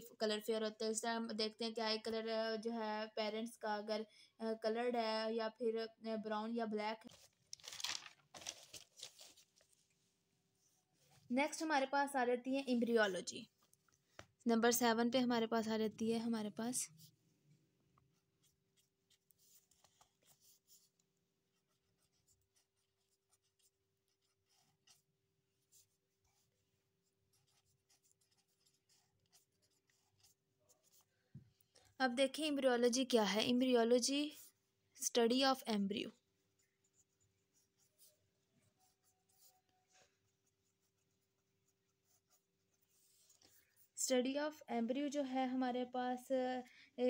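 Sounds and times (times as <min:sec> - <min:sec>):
pen scratching on paper: 0:16.2 - 0:35.4, 0:36.1 - 0:44.1.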